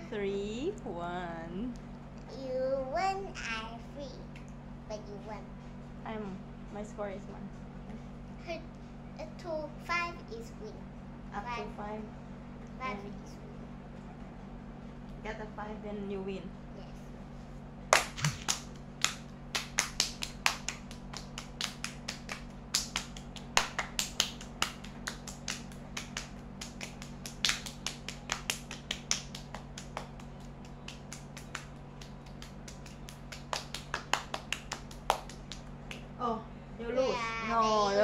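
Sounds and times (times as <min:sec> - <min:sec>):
hands clapping: 0:17.9 - 0:36.1.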